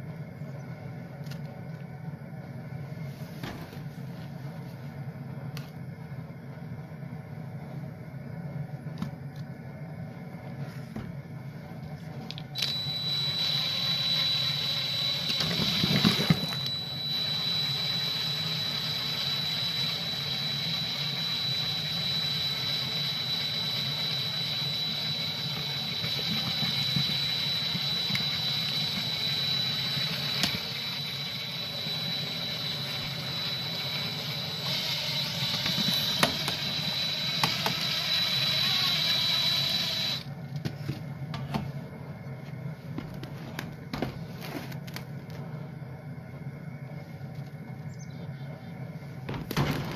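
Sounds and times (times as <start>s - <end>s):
cordless drill whining: 12.6s - 40.3s.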